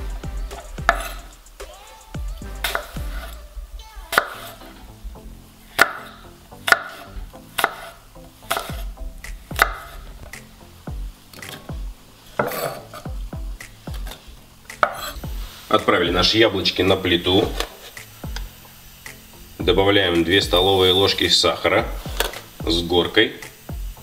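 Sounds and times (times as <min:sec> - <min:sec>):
knife chopping on wooden board: 0:00.8 - 0:01.2, 0:02.6 - 0:03.3, 0:04.1 - 0:04.6, 0:05.8 - 0:10.0, 0:12.4 - 0:13.1, 0:13.9 - 0:15.2.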